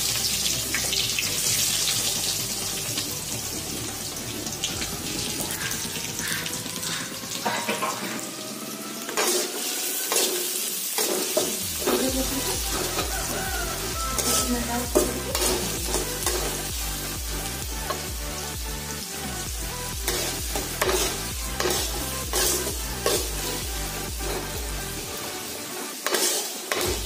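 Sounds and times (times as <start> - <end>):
onions sizzling in oil: 0.0 - 27.0
spatula scraping pan: 10.1 - 16.6, 20.0 - 23.6.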